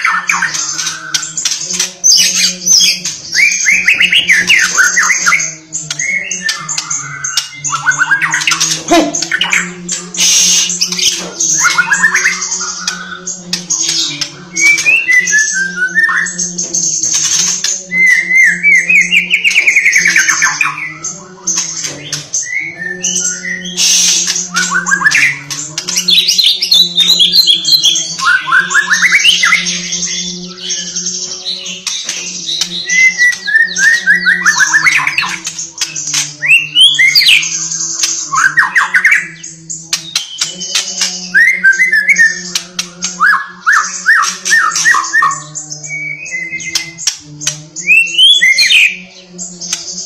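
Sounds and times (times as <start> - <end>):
bird singing whistles and trills: 0.0 - 50.0.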